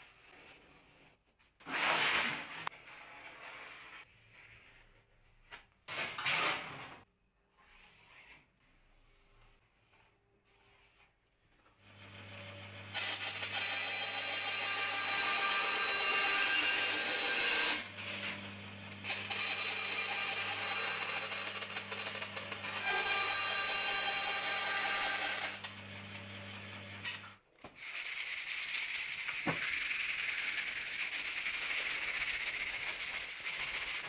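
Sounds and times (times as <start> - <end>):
bandsaw cutting metal sheet: 12.9 - 25.7.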